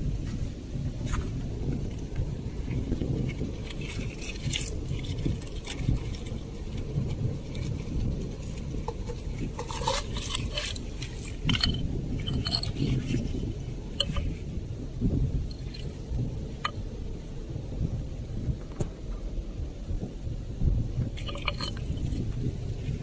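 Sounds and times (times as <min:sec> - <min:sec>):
low rumble: 0:00.0 - 0:23.0
shells clicking and scraping: 0:02.8 - 0:14.3, 0:21.2 - 0:22.3.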